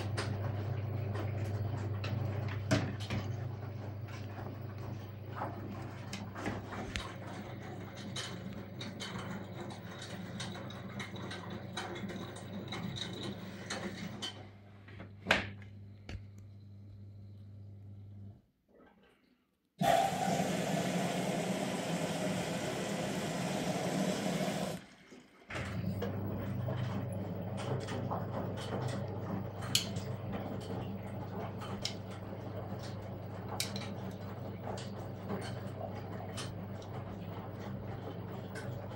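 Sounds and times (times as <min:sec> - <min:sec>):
washing machine humming: 0:00.0 - 0:19.0, 0:19.8 - 0:38.9
water rushing into machine: 0:19.8 - 0:38.9.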